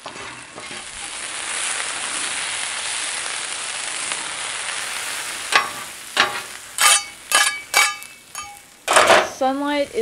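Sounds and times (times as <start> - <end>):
potatoes sizzling on griddle: 0.0 - 10.0
spatula striking metal griddle: 5.5 - 9.4.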